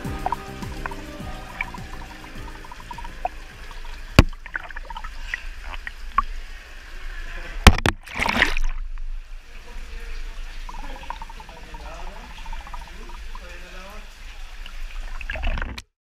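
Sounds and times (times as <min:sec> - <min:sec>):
water splashing and dripping: 0:00.0 - 0:15.9
muffled underwater sound: 0:09.4 - 0:14.2.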